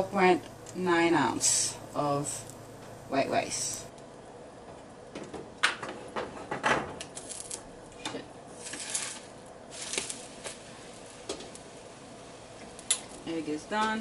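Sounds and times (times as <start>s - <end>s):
spatula scraping frying pan: 8.6s - 10.6s.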